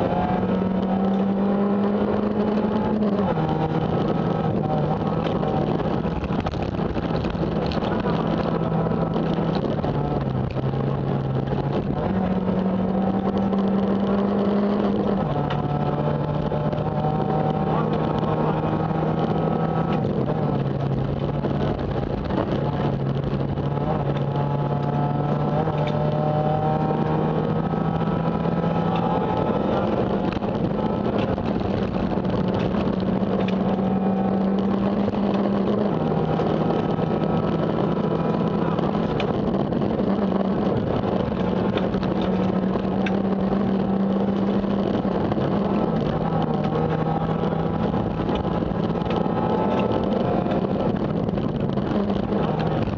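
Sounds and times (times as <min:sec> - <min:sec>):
car engine at high revs: 0:00.0 - 0:52.9.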